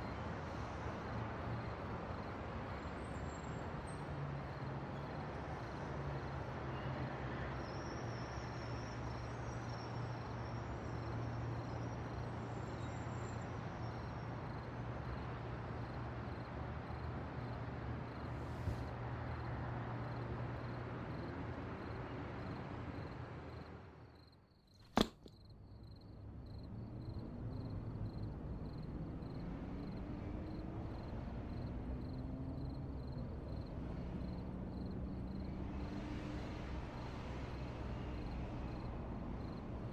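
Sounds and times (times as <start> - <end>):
street ambience hiss: 14.2 - 23.9, 35.0 - 39.9.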